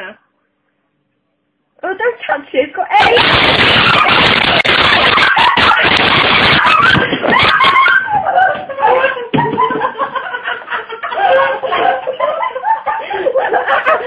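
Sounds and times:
people laughing: 0:03.0 - 0:14.0.

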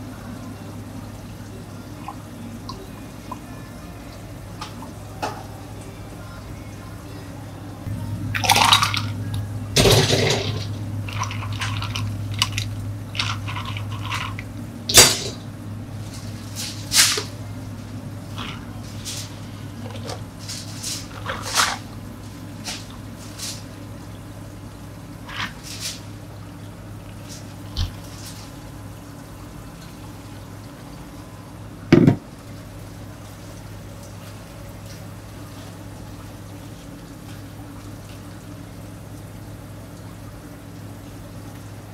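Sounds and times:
steady low hum: 0:00.0 - 0:41.9
ice cubes clattering into cups: 0:09.8 - 0:12.6, 0:13.2 - 0:14.4
water pouring over ice: 0:09.8 - 0:14.5
cups and utensils knocking on counter: 0:31.9 - 0:32.2.

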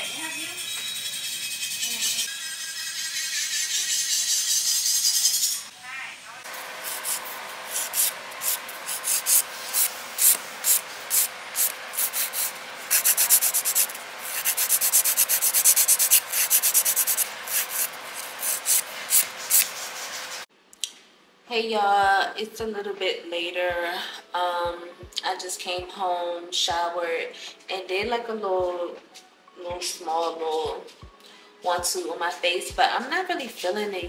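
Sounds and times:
nail file rasping on fingernails: 0:06.8 - 0:20.4.

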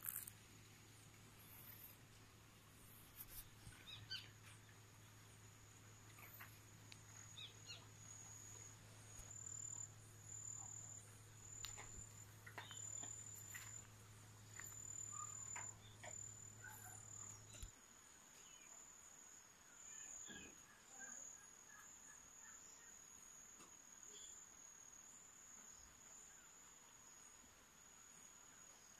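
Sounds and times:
faint ticks: 0:00.0 - 0:00.4, 0:06.0 - 0:17.8
insect trilling: 0:00.0 - 0:00.4, 0:01.4 - 0:02.0.

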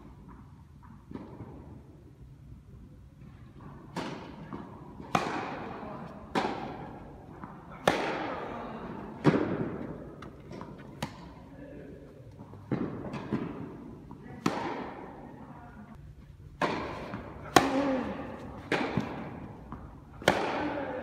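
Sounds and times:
rackets striking tennis ball: 0:03.6 - 0:11.6, 0:12.2 - 0:15.3, 0:16.5 - 0:21.0.

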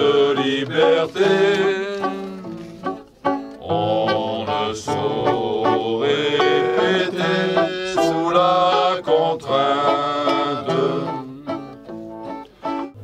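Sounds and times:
men singing together: 0:00.0 - 0:02.9, 0:03.6 - 0:11.8
strummed acoustic guitars: 0:00.0 - 0:13.0.

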